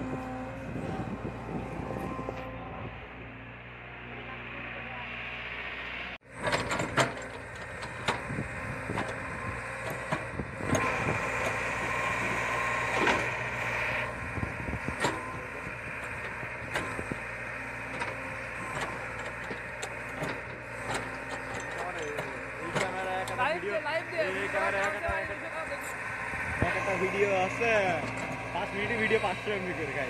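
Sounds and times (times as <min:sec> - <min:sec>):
excavator diesel engine under load: 0:00.0 - 0:30.0
high whine: 0:01.8 - 0:06.2.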